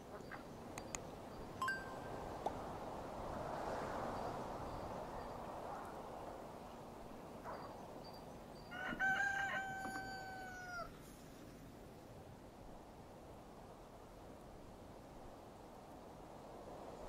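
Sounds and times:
rooster crowing: 8.7 - 10.9.

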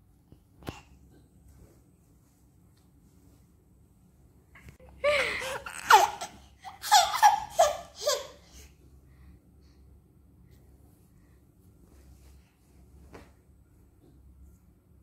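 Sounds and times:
baby laughing: 5.2 - 8.6.

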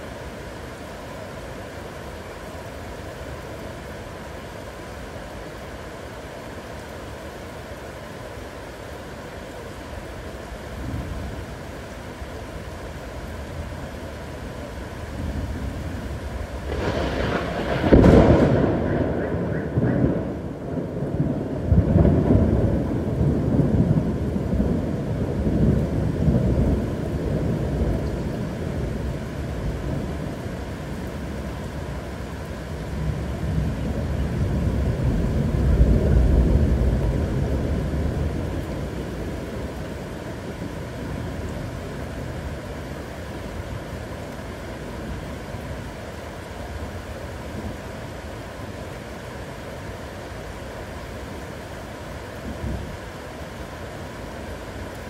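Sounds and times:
heavy rain: 0.0 - 55.0
thunderclap: 16.6 - 24.8
rumbling thunder: 16.6 - 29.0, 32.9 - 39.8.

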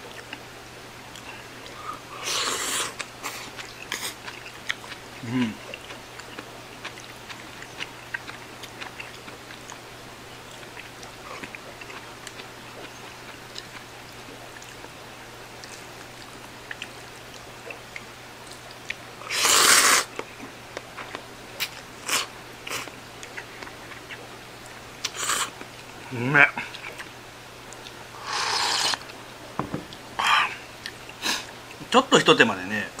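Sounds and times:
soft chewing: 0.0 - 29.2, 29.9 - 31.8
noodles slurping: 1.2 - 9.3, 19.2 - 20.2, 25.0 - 25.6, 28.2 - 29.1.

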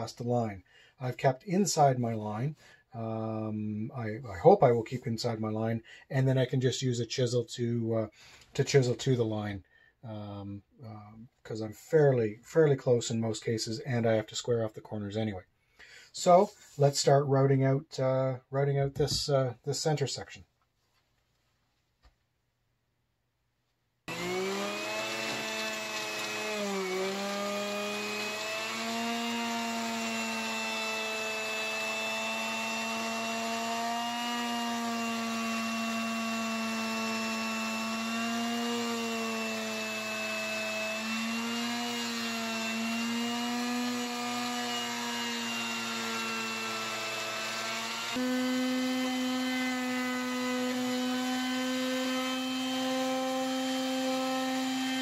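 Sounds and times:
handheld router motor whine: 24.1 - 55.0.

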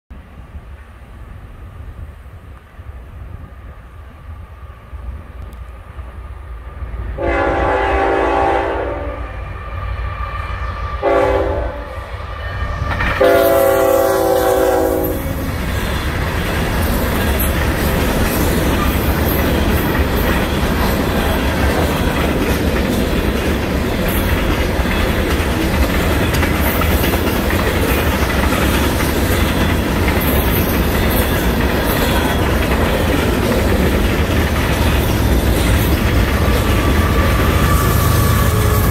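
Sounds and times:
freight train passing: 0.1 - 38.9
locomotive air horn blasts: 7.2 - 9.5, 11.0 - 12.2, 13.2 - 15.3, 36.7 - 38.9
wheels clattering over rail joints: 15.4 - 38.9.

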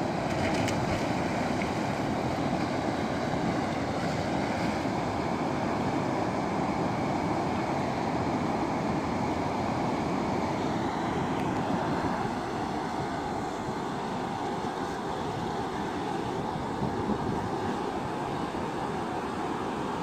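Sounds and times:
river water rushing over weir: 0.0 - 20.0
wind buffeting microphone: 16.6 - 17.8.

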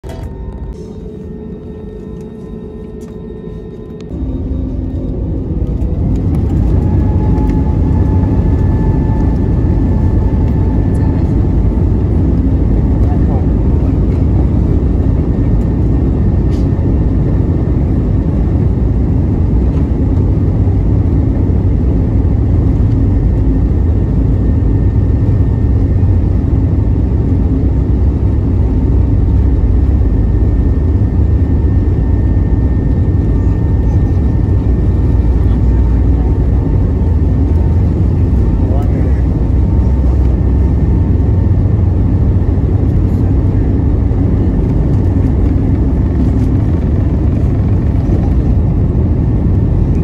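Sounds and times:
faint high whine: 0.0 - 11.6
low rumble of aircraft engines: 0.0 - 50.0.

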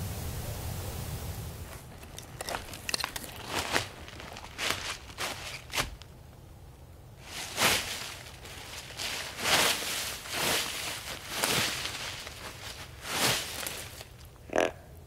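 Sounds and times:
footsteps in dry leaves: 1.8 - 6.0, 7.2 - 14.2.

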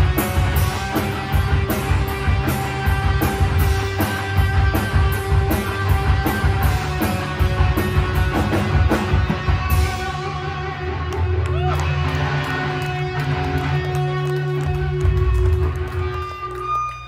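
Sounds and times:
drum kit and cymbal hits: 0.0 - 10.6
bass guitar: 0.0 - 17.0
distorted electric guitar: 0.0 - 17.0.

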